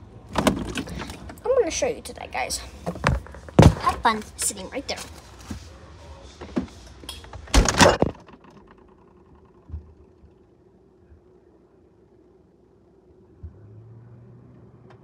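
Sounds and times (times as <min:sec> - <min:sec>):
faint steady hum: 0:00.0 - 0:15.0
refrigerator door shutting: 0:00.3 - 0:01.3, 0:07.3 - 0:08.6.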